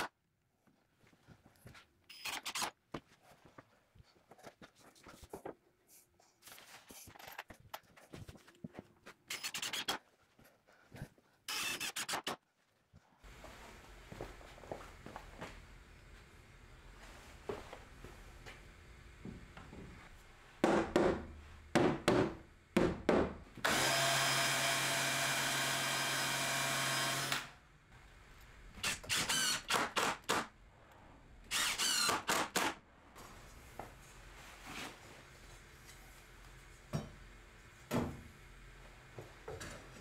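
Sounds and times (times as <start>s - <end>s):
drill-driver running: 11.5s - 12.2s, 23.6s - 27.6s, 28.8s - 30.1s, 31.5s - 32.7s
short drill bursts: 11.5s - 12.2s, 23.6s - 27.6s, 28.8s - 30.1s, 31.5s - 32.7s.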